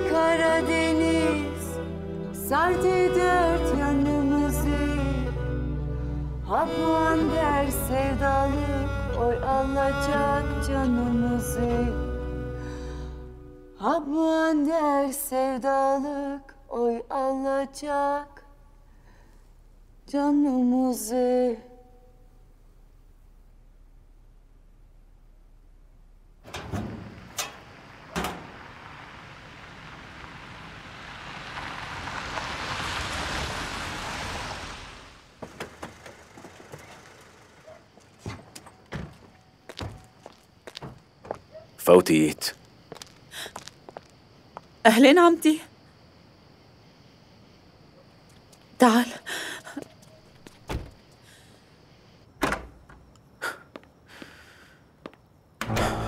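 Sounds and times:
car engine and tyre noise: 22.6 - 41.6.

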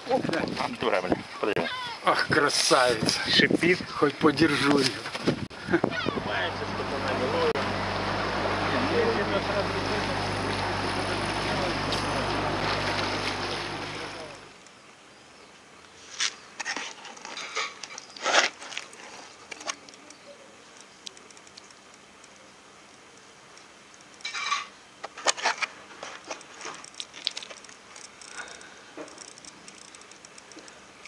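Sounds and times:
wind noise: 0.0 - 1.4, 2.2 - 6.4
boat motor: 6.0 - 14.6.

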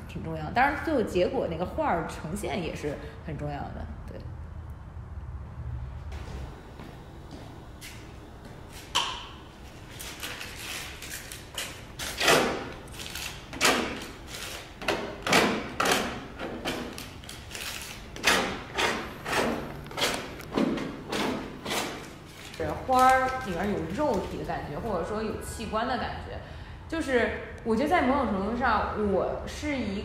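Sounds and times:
tool scraping through wet paint: 10.0 - 23.3.

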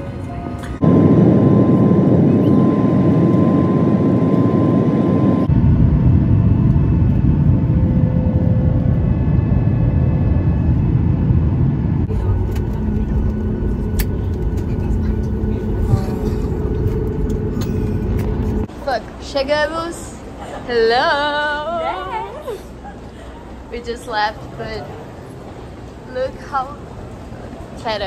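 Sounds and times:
jet engine cabin rush: 0.0 - 19.0.

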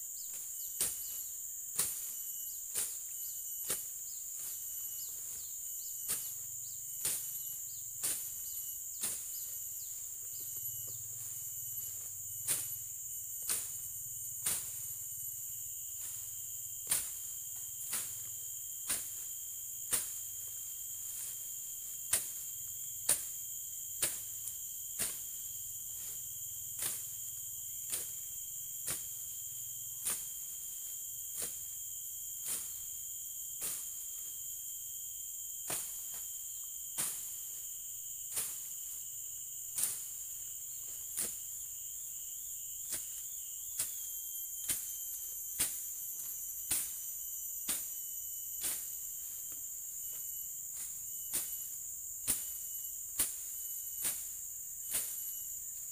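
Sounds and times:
high-pitched insect drone: 0.0 - 55.9
blade chopping through grass: 0.8 - 2.1, 13.4 - 13.8, 14.4 - 14.8, 16.8 - 18.2, 18.8 - 21.4, 23.0 - 23.4, 24.0 - 25.4, 27.8 - 28.2, 30.0 - 30.4, 39.7 - 40.3, 41.1 - 41.5, 53.2 - 54.3.

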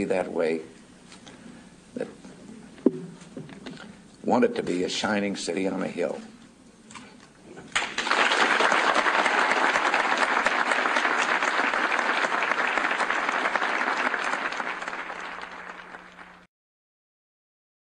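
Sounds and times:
faint steady hum: 0.0 - 16.5
audience applauding: 7.7 - 16.5.

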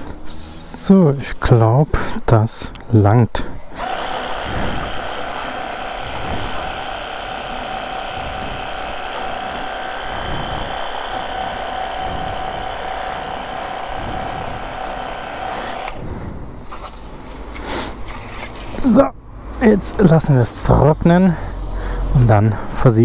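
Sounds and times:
pressure washer pump whine: 3.7 - 17.0.

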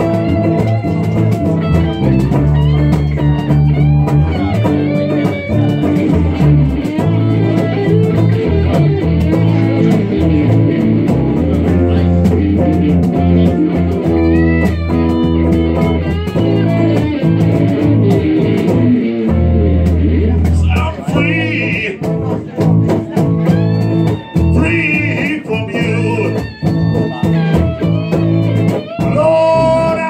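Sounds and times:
bent lead guitar notes: 0.0 - 30.0
electric blues band playing: 0.0 - 30.0.

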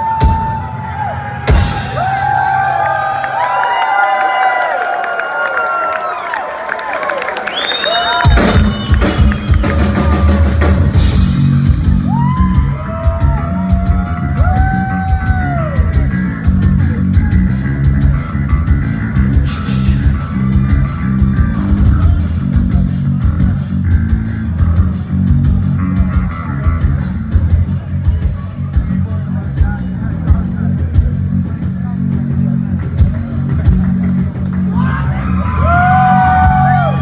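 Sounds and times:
heavy metal band playing live: 0.0 - 3.0, 8.2 - 37.0
sliding high guitar notes: 11.0 - 22.6.

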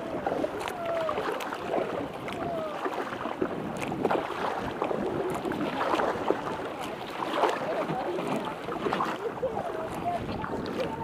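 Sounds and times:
kayak paddle splashing: 0.0 - 11.0
water lapping along hull: 0.0 - 11.0.

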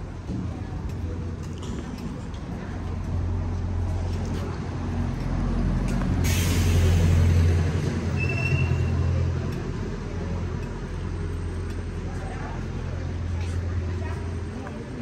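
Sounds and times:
bus engine humming: 0.0 - 15.0
air brakes hissing: 6.1 - 9.1.

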